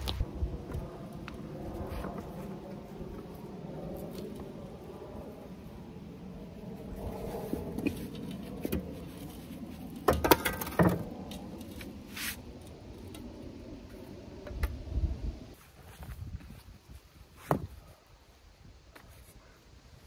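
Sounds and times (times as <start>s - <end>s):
shovel scraping through sand: 11.8s - 12.5s.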